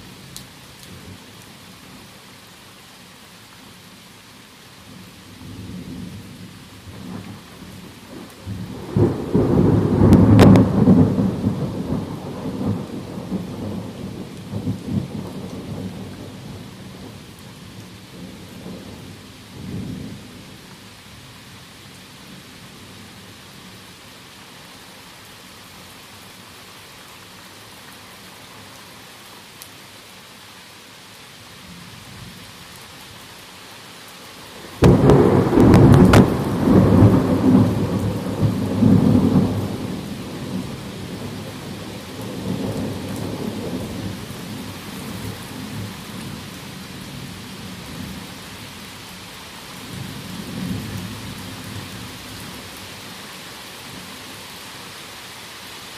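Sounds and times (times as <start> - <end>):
heavy rain: 0.0 - 55.9
thunder rumbling: 8.4 - 17.2, 34.8 - 44.6.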